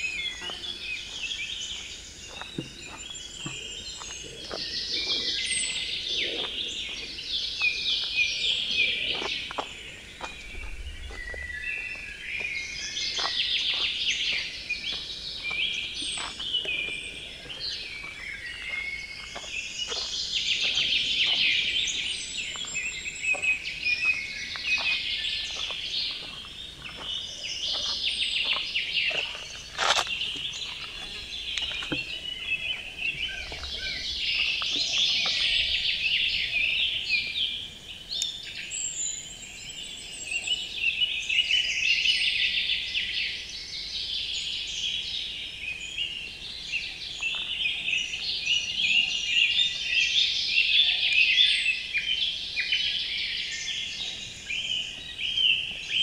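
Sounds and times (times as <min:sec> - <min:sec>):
songbirds singing: 0:00.0 - 0:56.0
footsteps on gravel: 0:00.1 - 0:36.1.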